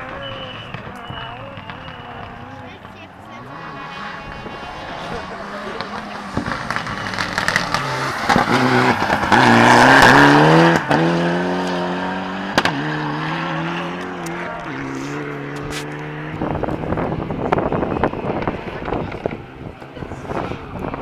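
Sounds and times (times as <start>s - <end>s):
tyre or gravel noise: 0.0s - 13.0s, 13.6s - 16.3s
rally car engine revving: 0.0s - 21.0s.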